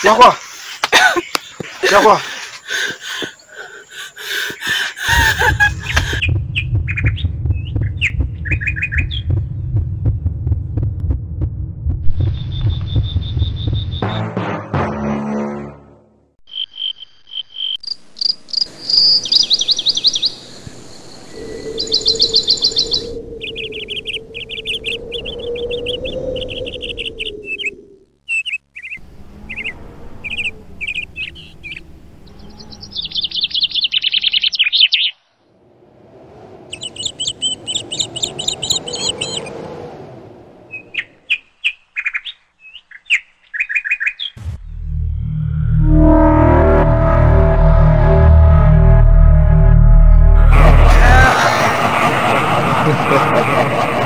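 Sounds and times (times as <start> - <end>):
birds chirping: 0.0 - 10.6, 16.5 - 35.5, 36.7 - 44.8.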